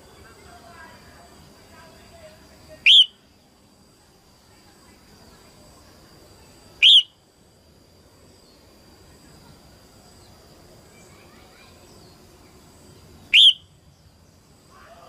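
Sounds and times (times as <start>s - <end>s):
faint bird chirps: 2.7s - 7.2s, 8.4s - 15.0s
bird upward-sweeping calls: 6.8s - 7.1s, 13.3s - 13.7s.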